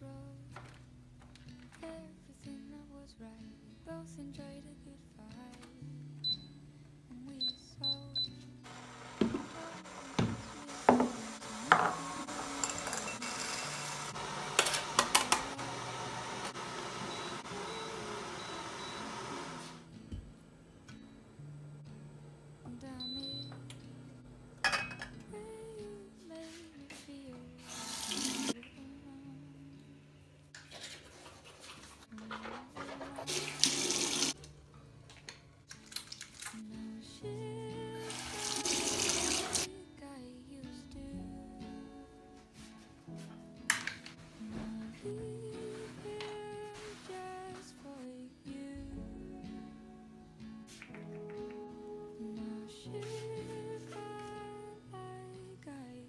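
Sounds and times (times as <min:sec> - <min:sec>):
kitchenware knocking on wooden counter: 0:10.2 - 0:12.0.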